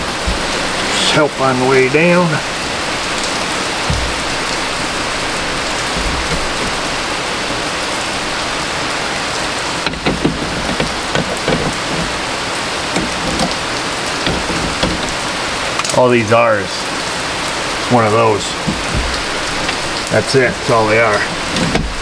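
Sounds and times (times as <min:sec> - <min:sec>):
steady rushing hiss: 0:00.0 - 0:22.0
light clicks and knocks: 0:03.1 - 0:07.2, 0:09.8 - 0:16.0, 0:18.5 - 0:20.1.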